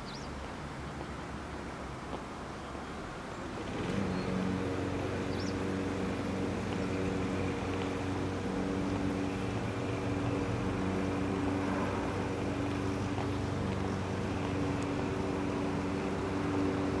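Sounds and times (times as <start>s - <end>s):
steady engine drone: 3.5s - 17.0s.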